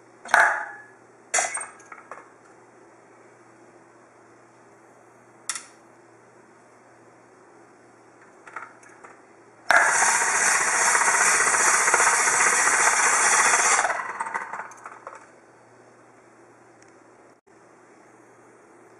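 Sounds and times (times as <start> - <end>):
citrus press motor spinning: 9.7 - 15.2.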